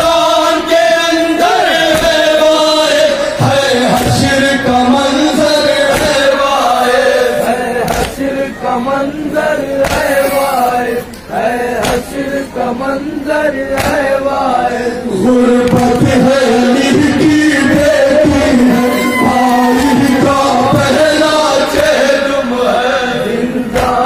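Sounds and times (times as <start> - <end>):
men chanting in unison: 0.0 - 24.0
chest-beating slaps: 7.9 - 8.2, 9.8 - 10.1, 11.8 - 12.1, 13.8 - 14.0.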